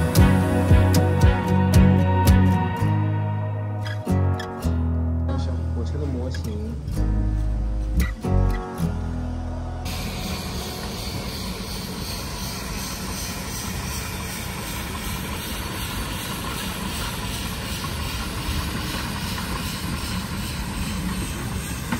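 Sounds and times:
steam hissing: 0.0s - 1.9s, 9.9s - 21.9s
low train rumble: 0.0s - 21.9s.

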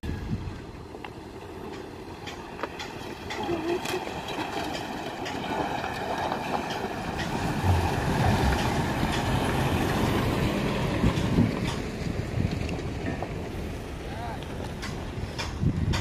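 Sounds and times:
pickup engine under load: 0.8s - 16.0s.

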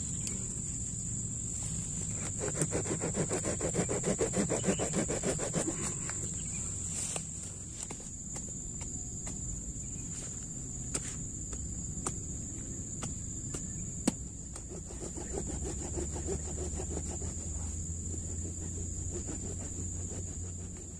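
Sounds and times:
insect trill: 0.0s - 20.9s
hand saw rasping through wood: 2.2s - 6.3s, 14.6s - 20.9s.

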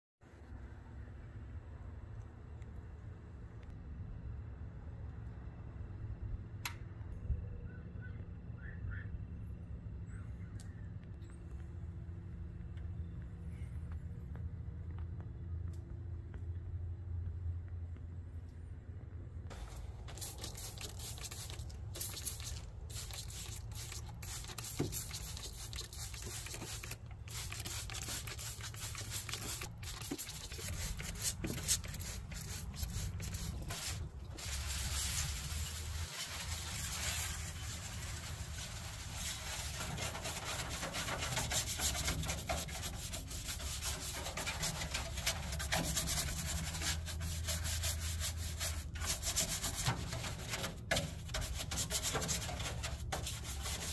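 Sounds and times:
brush scrubbing: 19.6s - 53.9s
spray bottle squirts: 19.7s - 46.8s.

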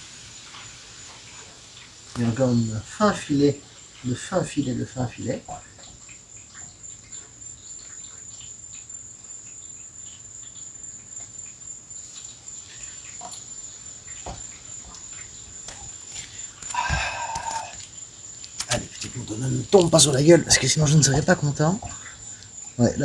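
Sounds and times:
cricket chirring: 0.0s - 23.0s
faint ticks and taps: 5.4s - 12.4s, 13.0s - 20.3s.

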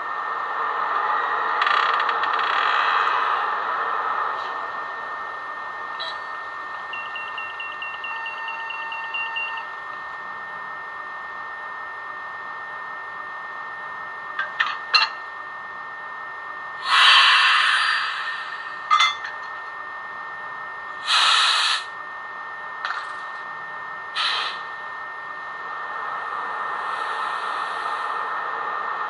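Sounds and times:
steady hum: 0.0s - 29.0s
pulsing beep: 5.9s - 9.8s
air-release hisses: 16.8s - 18.6s, 21.0s - 21.9s, 24.2s - 24.6s.

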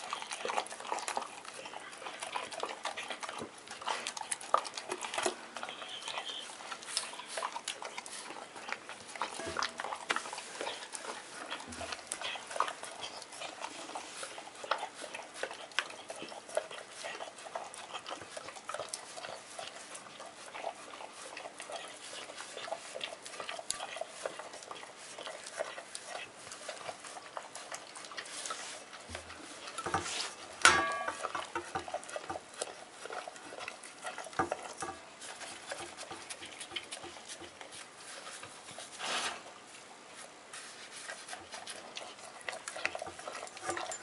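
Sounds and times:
dog licking and lapping: 0.0s - 44.0s
tongue scraping metal bowl: 9.1s - 15.7s
metal bowl clanging: 9.3s - 10.1s, 30.6s - 31.7s.

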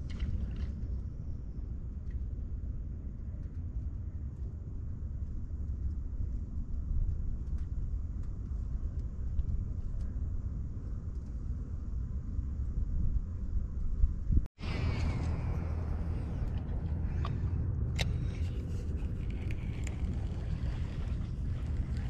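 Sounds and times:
wind buffeting microphone: 5.6s - 22.0s.

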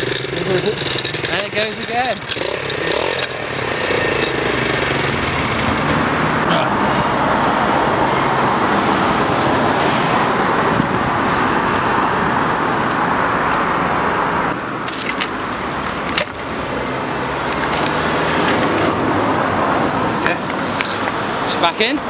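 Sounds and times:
motorcycle engine idling: 0.0s - 6.1s
sharp metallic clicks: 0.0s - 6.2s.

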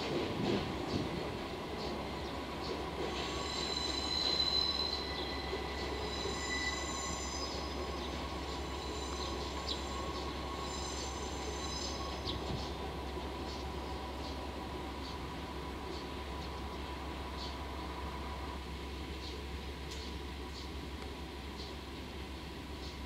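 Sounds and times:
wagon wheels squealing on rails: 3.0s - 12.6s.

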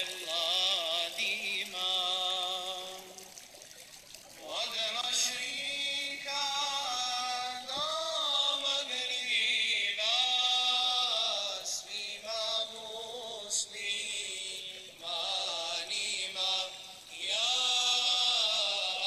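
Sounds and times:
men singing devotional hymn: 0.0s - 3.4s, 4.4s - 19.0s.

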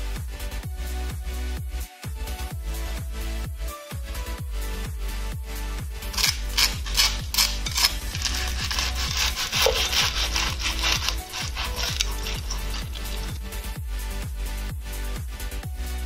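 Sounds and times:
electronic music with kick drum: 0.0s - 16.0s
knife sawing through crunchy crust: 6.2s - 13.6s.

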